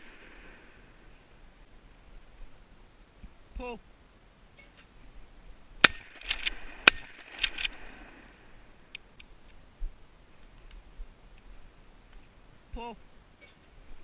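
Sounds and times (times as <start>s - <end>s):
shotgun shots: 5.8s - 7.8s
shotgun pump racking clack: 5.9s - 7.8s.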